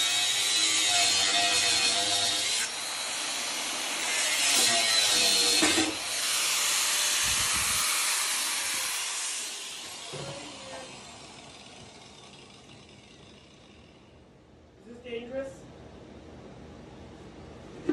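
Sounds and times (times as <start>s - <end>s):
angle grinder cutting metal: 0.0s - 14.1s.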